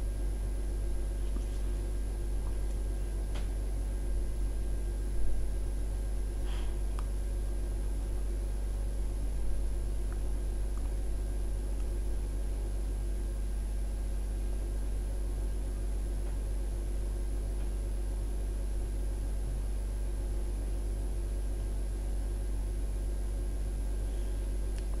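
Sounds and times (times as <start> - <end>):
washing machine humming: 0.0 - 25.0.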